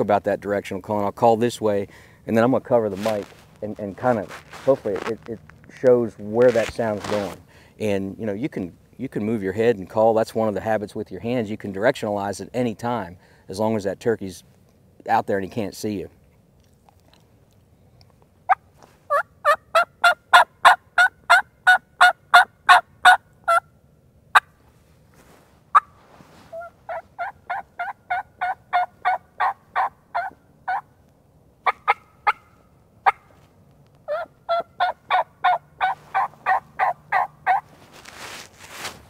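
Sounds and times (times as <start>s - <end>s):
turkey call yelps: 18.5s - 23.6s, 26.5s - 30.9s, 31.6s - 33.3s, 34.1s - 37.7s.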